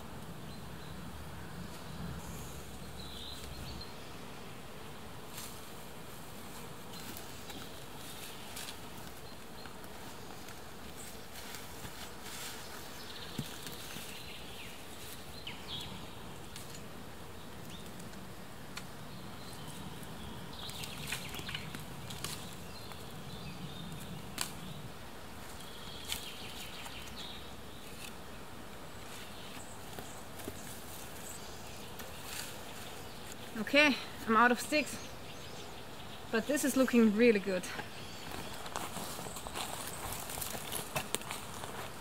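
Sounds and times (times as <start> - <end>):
sticks and moss rustling: 5.2 - 16.9, 17.5 - 42.0
twigs clicking together: 20.6 - 23.0, 24.0 - 24.7, 25.5 - 27.2.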